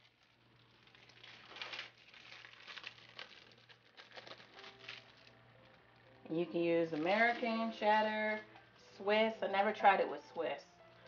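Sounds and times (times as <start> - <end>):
plastic bag crinkling: 0.0 - 8.7
low steady hum: 0.0 - 11.0.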